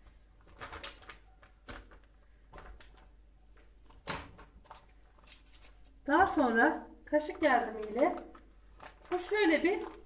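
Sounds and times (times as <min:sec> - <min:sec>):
plastic packet crinkling: 0:07.2 - 0:10.0.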